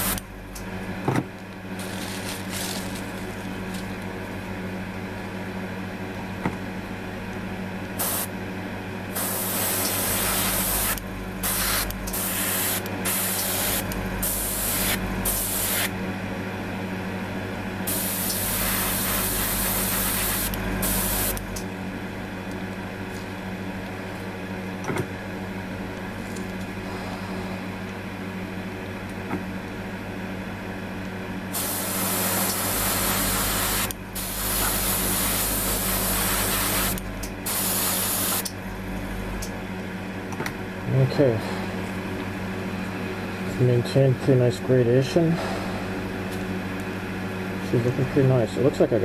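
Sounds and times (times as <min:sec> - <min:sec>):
steady low hum: 0:00.0 - 0:49.0
airbrush spraying hiss: 0:08.0 - 0:08.3, 0:09.1 - 0:15.9, 0:17.9 - 0:21.4, 0:31.5 - 0:38.5.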